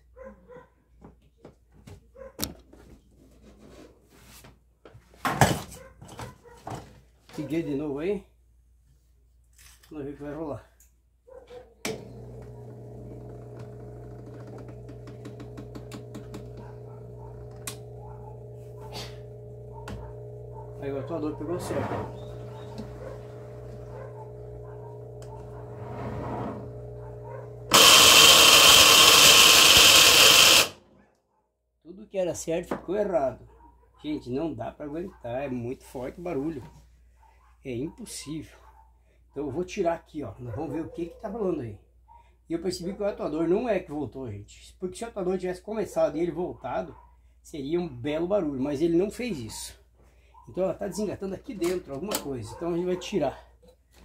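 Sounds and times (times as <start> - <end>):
washing machine motor hum: 11.9 - 30.7
loud mechanical scraping: 20.8 - 23.9, 25.4 - 26.9, 27.6 - 30.8.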